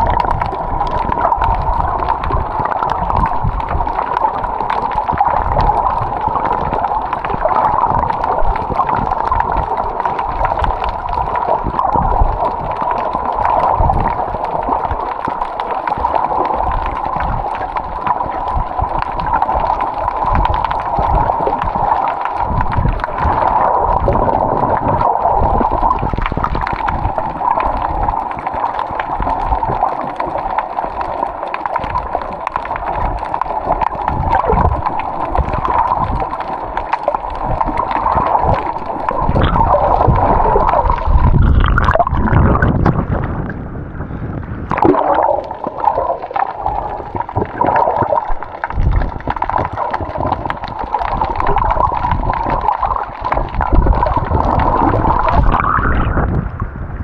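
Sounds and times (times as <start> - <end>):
water gurgling and sloshing: 0.0 - 57.0
low rumbles: 37.4 - 52.6.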